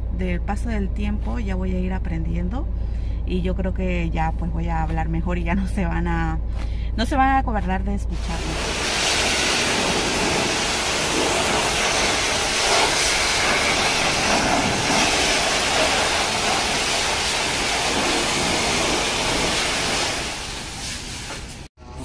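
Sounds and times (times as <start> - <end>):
high-pressure water spray hissing: 8.2 - 21.7.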